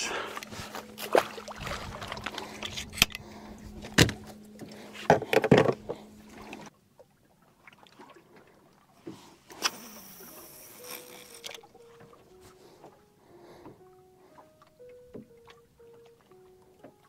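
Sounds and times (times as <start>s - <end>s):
faint steady hum: 0.0s - 7.3s
knocks and thumps against boat: 0.4s - 6.7s.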